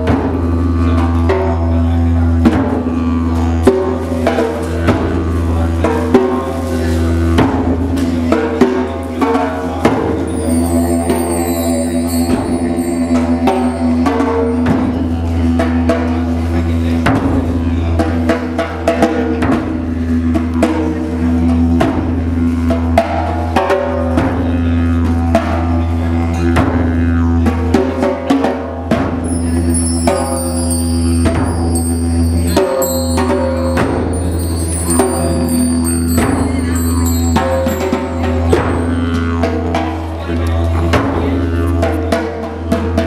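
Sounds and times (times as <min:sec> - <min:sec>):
didgeridoo drone: 0:00.0 - 0:43.0
drum strikes: 0:07.4 - 0:16.1, 0:28.9 - 0:40.0
high ringing tones: 0:10.2 - 0:15.2, 0:29.2 - 0:39.2.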